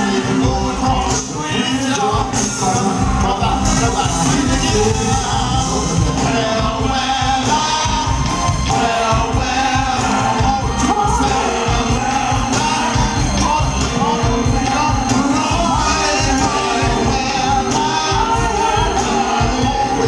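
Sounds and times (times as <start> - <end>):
drums with steady beat: 0.0 - 20.0
keyboards: 0.0 - 20.0
male lead singer: 0.0 - 20.0
female backing singers: 5.0 - 20.0.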